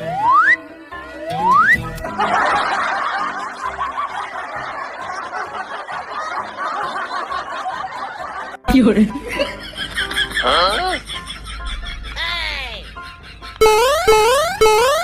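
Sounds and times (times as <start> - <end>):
rising cartoon whistle: 0.0 - 0.6, 1.2 - 1.9
background music: 0.0 - 15.0
laugh track crowd laughter: 2.0 - 13.6.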